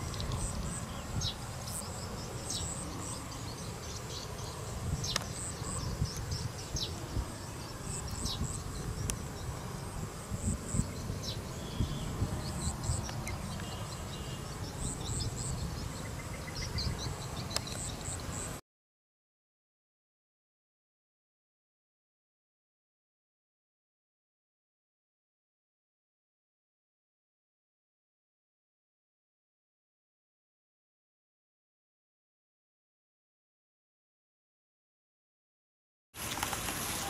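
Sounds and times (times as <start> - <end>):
insects buzzing and trilling: 0.0 - 18.6.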